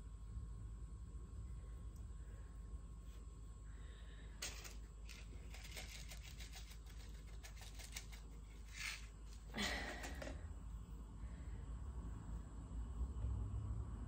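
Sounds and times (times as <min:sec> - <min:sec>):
seeds clicking: 0:04.4 - 0:09.2.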